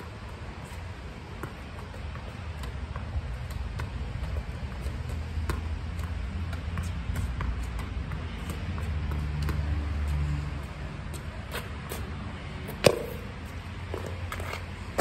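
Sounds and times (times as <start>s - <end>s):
tennis ball knocking off wall: 12.8s - 13.3s.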